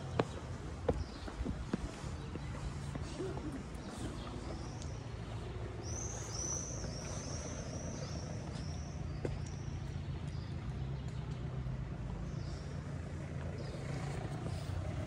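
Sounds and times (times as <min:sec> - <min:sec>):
low steady rumble: 0:00.0 - 0:15.0
small songbird singing: 0:04.1 - 0:11.4.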